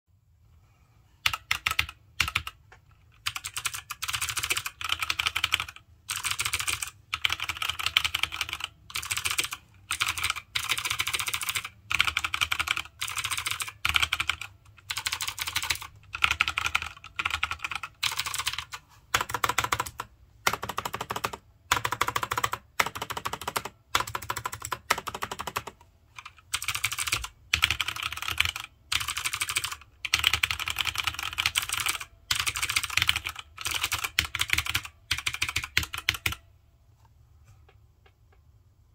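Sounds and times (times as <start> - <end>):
mechanical keyboard typing: 1.2 - 36.5.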